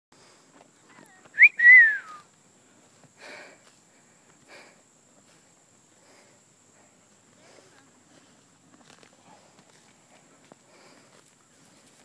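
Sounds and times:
person whistling two-note call: 0:01.4 - 0:02.3.

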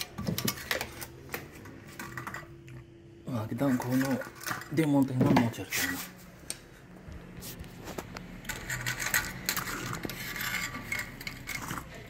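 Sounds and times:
metal motor clinking and scraping: 0:00.0 - 0:02.6, 0:03.3 - 0:06.1, 0:07.8 - 0:12.0.

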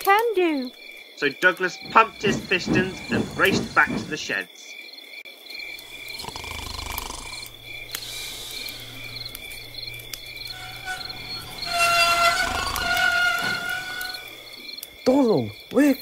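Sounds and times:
crickets chirping: 0:00.0 - 0:16.0
pitched steady tones: 0:01.3 - 0:04.4.

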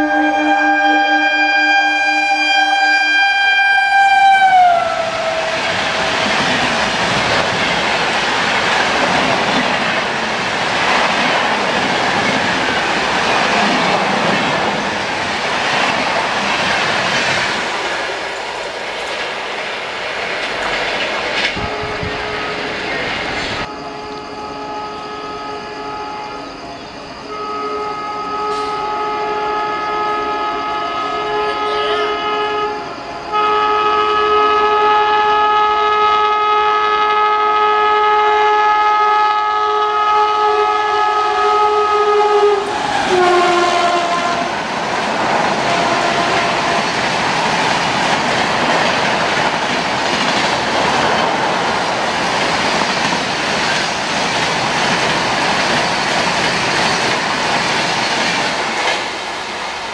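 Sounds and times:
train horn: 0:00.0 - 0:06.6, 0:21.5 - 0:22.8, 0:23.6 - 0:26.6, 0:27.2 - 0:44.7, 0:45.4 - 0:47.2
train wheels clattering: 0:05.4 - 0:23.7, 0:42.6 - 0:59.6.

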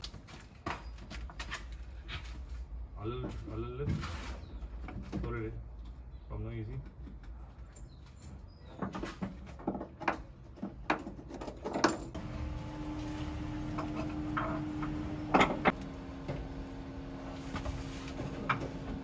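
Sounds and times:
metal tools clanking: 0:13.7 - 0:15.8.

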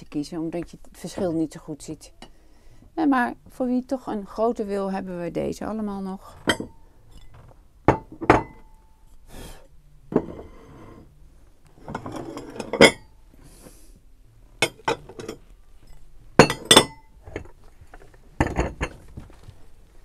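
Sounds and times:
stoneware plates clinking: 0:06.4 - 0:08.7, 0:11.8 - 0:13.1, 0:14.6 - 0:17.4.

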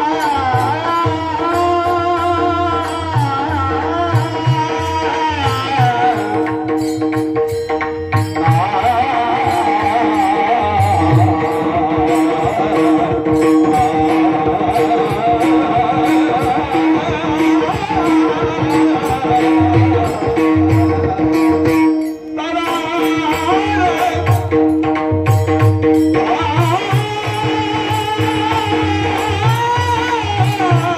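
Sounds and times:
devotional group music over loudspeaker: 0:08.2 - 0:25.4.

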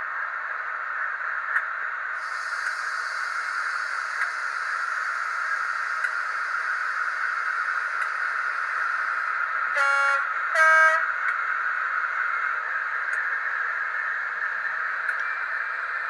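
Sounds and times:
model locomotive diesel idling: 0:02.1 - 0:16.0
two-tone train horn: 0:09.7 - 0:11.2.

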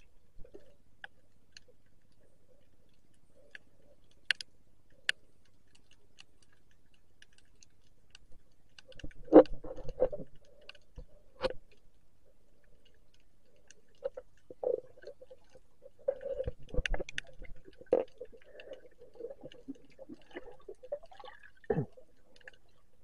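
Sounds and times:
underwater clicks and crackles: 0:00.0 - 0:23.0
low rumbling water movement: 0:08.4 - 0:23.0.

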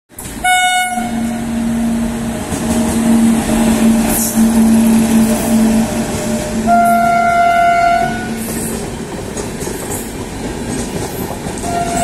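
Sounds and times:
locomotive hum: 0:00.1 - 0:12.0
wheels rumbling on rails: 0:00.1 - 0:12.0
train horn: 0:00.4 - 0:02.2, 0:02.8 - 0:08.5, 0:11.6 - 0:12.0.

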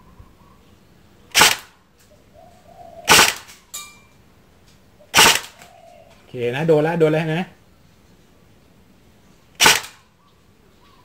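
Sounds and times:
airsoft machine gun bursts: 0:01.3 - 0:01.7, 0:03.1 - 0:03.6, 0:05.1 - 0:05.6, 0:09.6 - 0:10.0.

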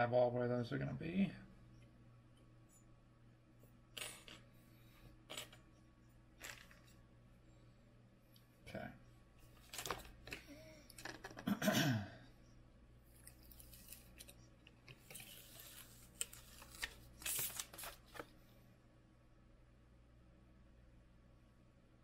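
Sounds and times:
paper liner crinkling: 0:15.0 - 0:18.3.

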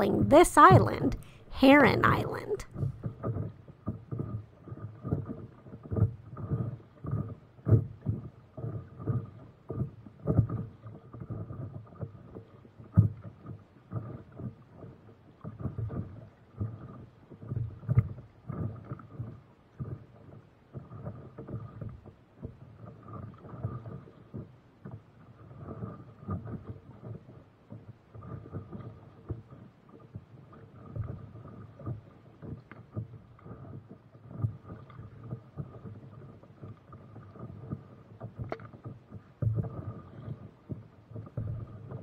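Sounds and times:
water slapping against paddleboard: 0:02.7 - 0:42.0.

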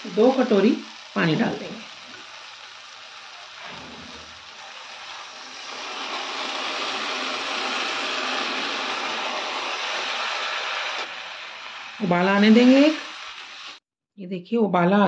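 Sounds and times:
water splashing into hot oil: 0:00.0 - 0:13.8.

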